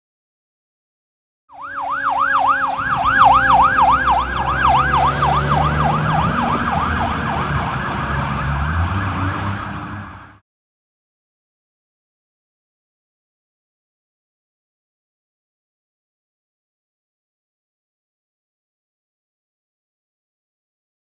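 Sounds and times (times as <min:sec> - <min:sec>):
fire engine siren yelping: 0:01.5 - 0:10.4
truck engine rumbling: 0:01.6 - 0:10.4
rushing hiss: 0:05.0 - 0:06.2.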